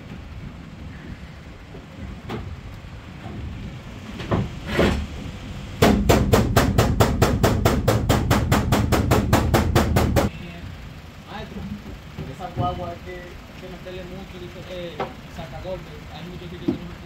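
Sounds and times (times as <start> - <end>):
metal bar knocking on van panel: 5.8 - 10.3.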